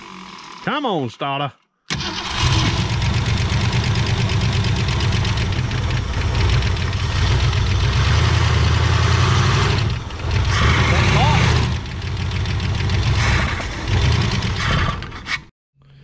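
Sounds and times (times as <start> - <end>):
car engine starting and running: 1.9 - 15.1.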